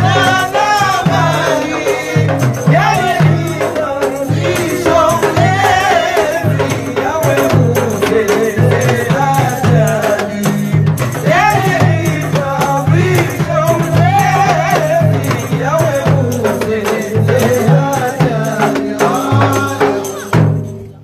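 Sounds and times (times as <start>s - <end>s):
men singing together: 0.0s - 20.8s
frame drums with jingles: 0.0s - 21.0s.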